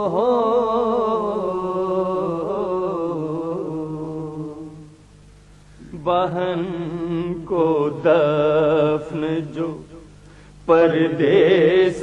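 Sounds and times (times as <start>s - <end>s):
men singing a long note: 0.0s - 4.9s, 10.7s - 12.0s.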